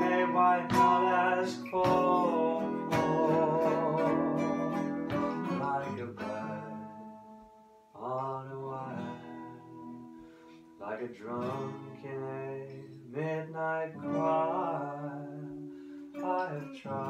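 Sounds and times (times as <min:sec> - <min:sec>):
acoustic guitars strumming: 0:00.0 - 0:17.0.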